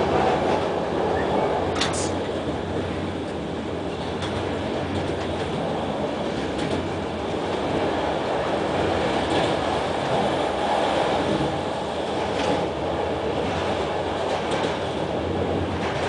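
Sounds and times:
train wheels rumbling on track: 0:00.0 - 0:16.0.

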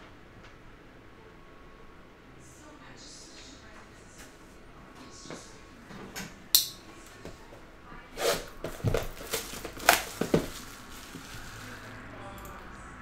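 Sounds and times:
sharp click: 0:06.6 - 0:06.8
plastic shrink wrap crinkling: 0:08.4 - 0:12.0.

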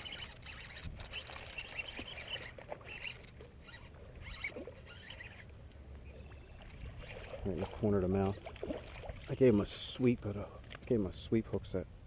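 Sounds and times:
fishing reel cranking: 0:00.0 - 0:05.5
small water splashes: 0:00.0 - 0:11.0.

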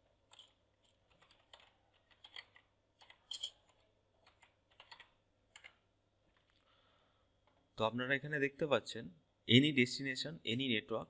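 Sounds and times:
faint computer keyboard typing: 0:00.3 - 0:06.7.

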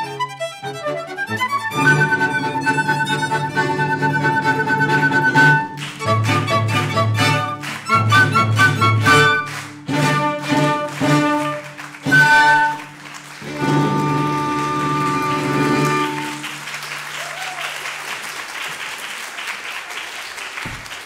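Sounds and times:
chamber ensemble playing chords: 0:00.0 - 0:16.8
audience applause: 0:05.6 - 0:21.0.

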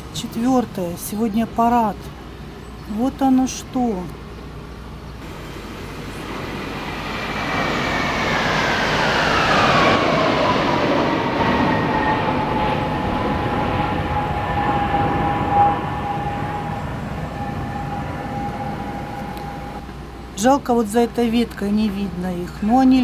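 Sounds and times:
military aircraft roaring overhead: 0:03.2 - 0:23.0
jet engine whine: 0:04.5 - 0:21.9.

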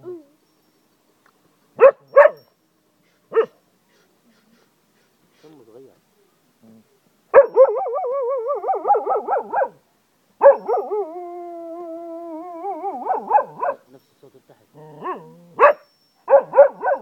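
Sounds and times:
dog howling: 0:10.4 - 0:13.8.

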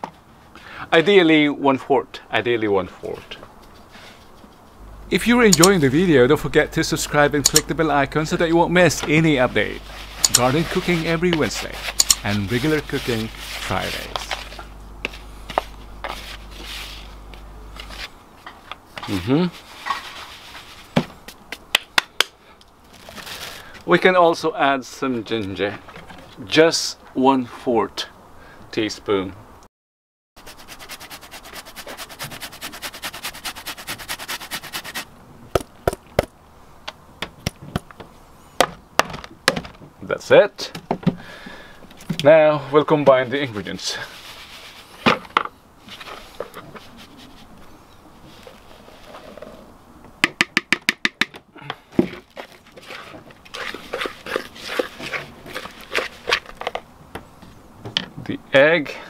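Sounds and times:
spatula scraping plastic bowl: 0:08.8 - 0:18.1, 0:52.2 - 0:56.8
ginger rasping on metal grater: 0:30.4 - 0:35.1, 0:52.8 - 0:56.6.

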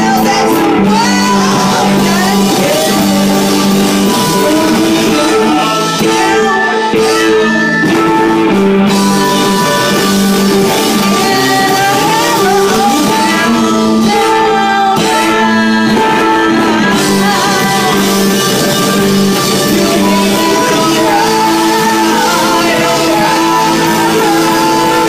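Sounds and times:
live rock band music: 0:00.0 - 0:25.0
person singing: 0:00.0 - 0:25.0.

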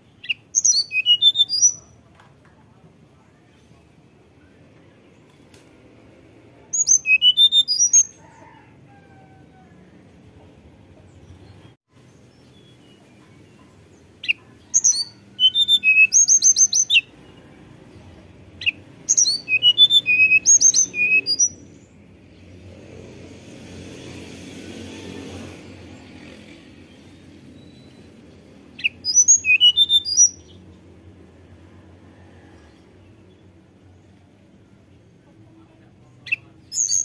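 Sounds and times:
bird singing whistled notes: 0:00.2 - 0:02.0, 0:06.7 - 0:08.2, 0:14.2 - 0:17.4, 0:18.6 - 0:21.9, 0:27.5 - 0:30.6, 0:36.3 - 0:37.0.

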